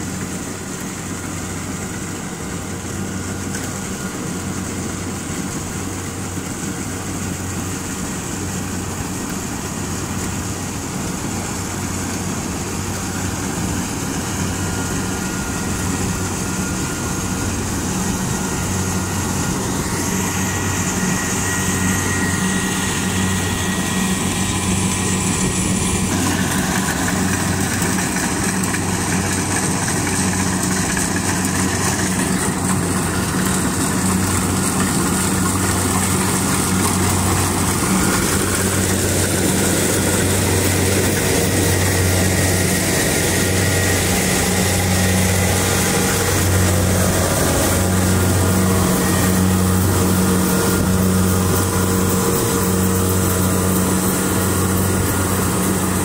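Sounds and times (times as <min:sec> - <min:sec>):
diesel engine drone: 0:00.0 - 0:56.0
machinery clatter: 0:12.0 - 0:56.0.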